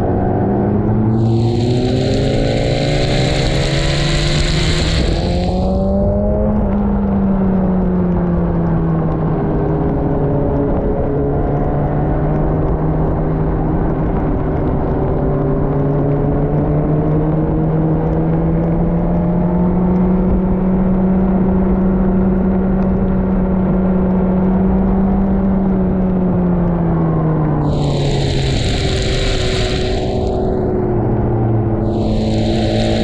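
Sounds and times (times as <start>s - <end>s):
wind and road noise: 0.0s - 33.0s
motorcycle engine running: 1.0s - 8.5s, 27.6s - 31.0s, 31.8s - 33.0s.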